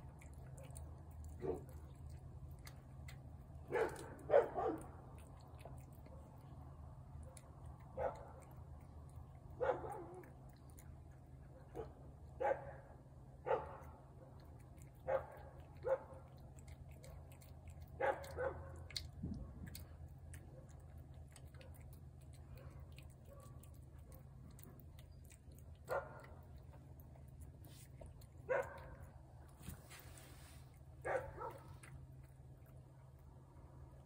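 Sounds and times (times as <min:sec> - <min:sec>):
dog barking: 0:00.5 - 0:01.9, 0:03.6 - 0:05.0, 0:07.2 - 0:08.6, 0:09.5 - 0:10.4, 0:11.5 - 0:19.0, 0:20.4 - 0:24.6, 0:25.8 - 0:26.5, 0:28.3 - 0:29.1, 0:31.0 - 0:31.9.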